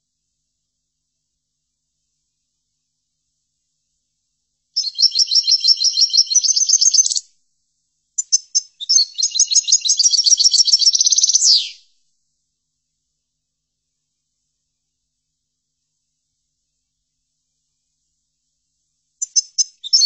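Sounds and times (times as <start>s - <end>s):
goldfinch twittering song: 4.8s - 7.2s, 8.2s - 11.8s, 19.2s - 20.0s.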